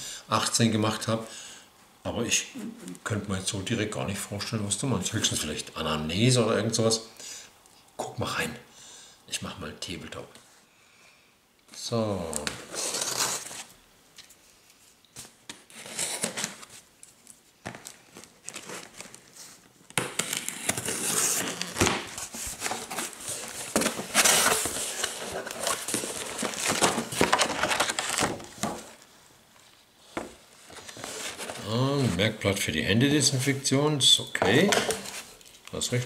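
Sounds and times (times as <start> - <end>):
plastic and paper crinkling: 12.3 - 32.3
packing tape tearing: 12.7 - 13.7, 19.9 - 28.5.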